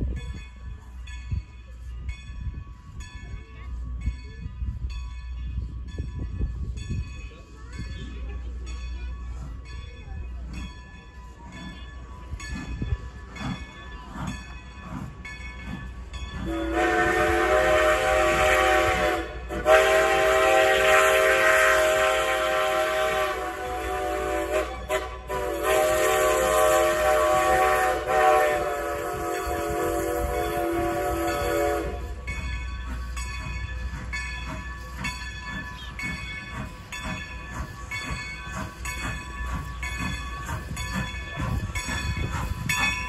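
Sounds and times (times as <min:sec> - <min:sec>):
steam locomotive exhaust chuffs: 0:00.0 - 0:43.0
steam whistle: 0:16.4 - 0:32.2.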